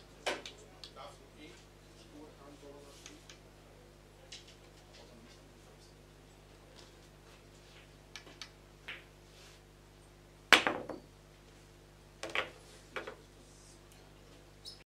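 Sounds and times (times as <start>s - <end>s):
pool balls clicking: 12.2s - 13.2s.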